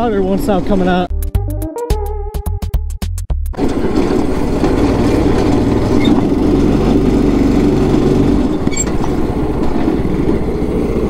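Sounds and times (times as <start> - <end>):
go-kart engine running: 3.6 - 11.0.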